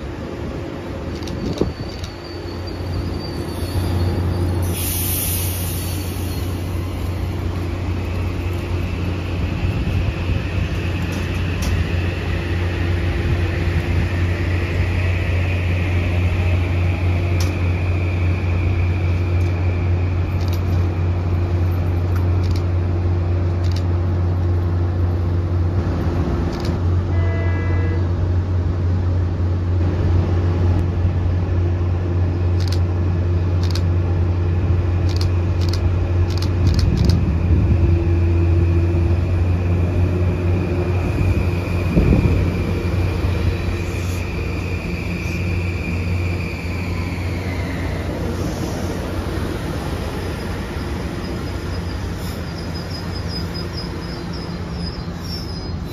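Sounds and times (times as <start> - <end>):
electric train hum: 0.0 - 55.9
faint train whine: 0.0 - 55.9
brief tone: 27.1 - 28.1.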